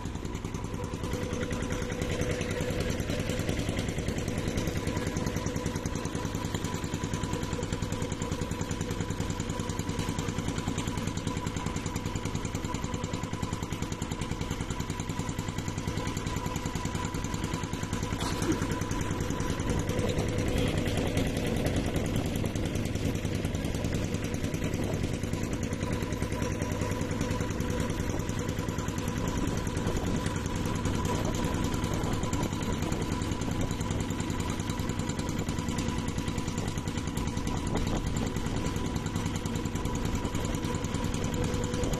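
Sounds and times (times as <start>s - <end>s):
boat engine running: 0.0s - 41.9s.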